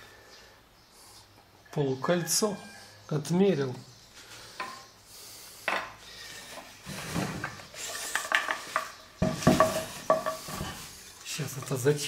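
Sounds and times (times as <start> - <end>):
wooden clatter: 6.9 - 10.9
wood knocking on wood: 8.2 - 10.7.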